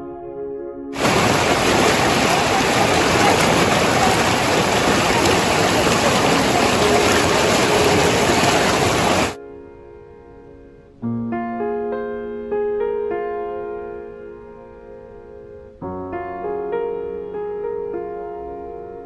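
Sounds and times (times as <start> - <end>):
river water pouring over rocks: 1.0 - 9.4.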